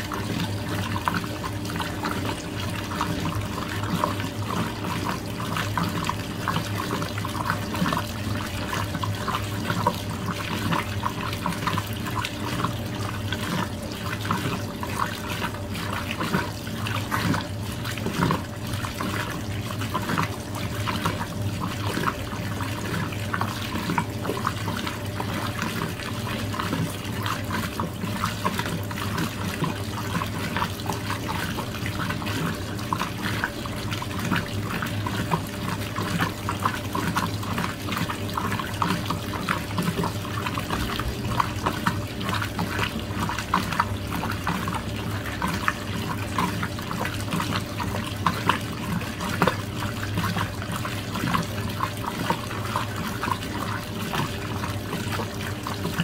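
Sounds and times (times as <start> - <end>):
washing machine low hum: 0.0 - 56.0
water splashing in washing machine: 0.0 - 56.0.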